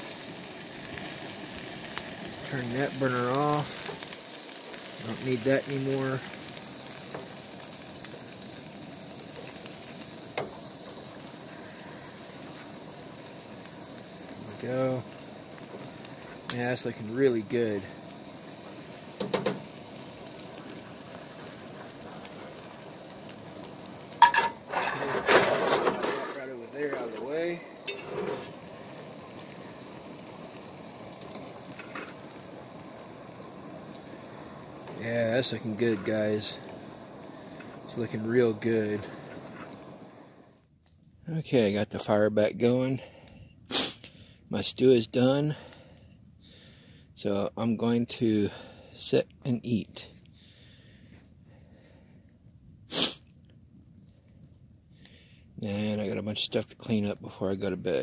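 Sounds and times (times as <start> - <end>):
meat sizzling in oil: 0.0 - 40.6, 43.7 - 44.0, 52.9 - 53.3
stew simmering hiss: 0.0 - 58.0.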